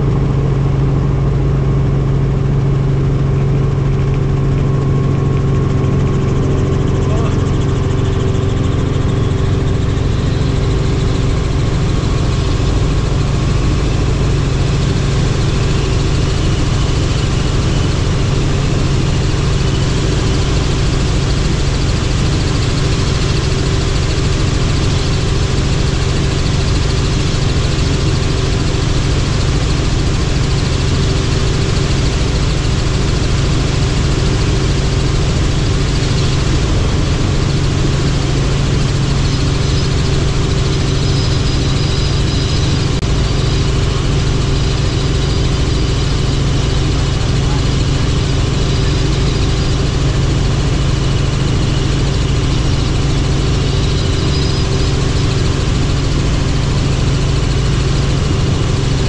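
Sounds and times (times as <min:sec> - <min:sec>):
helicopter engine and rotor drone: 0:00.0 - 0:59.0.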